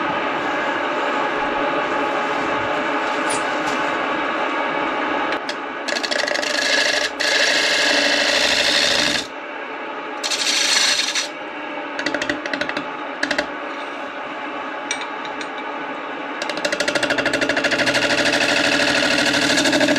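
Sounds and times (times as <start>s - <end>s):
lathe humming: 5.4s - 9.3s, 10.2s - 11.3s, 16.4s - 19.9s
gouge scraping wood on lathe: 5.9s - 9.3s, 10.2s - 11.3s.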